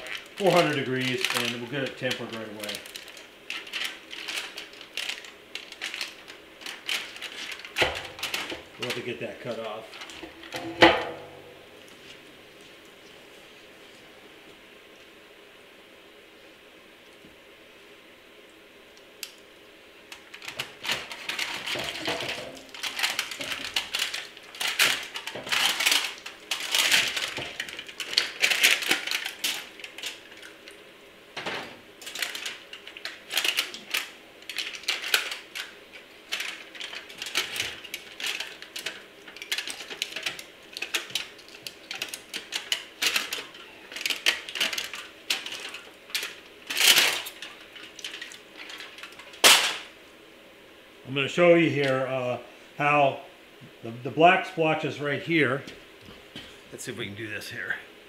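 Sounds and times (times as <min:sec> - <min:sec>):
foil crinkling and tearing: 0:00.0 - 0:10.6, 0:20.1 - 0:30.8, 0:32.0 - 0:49.9.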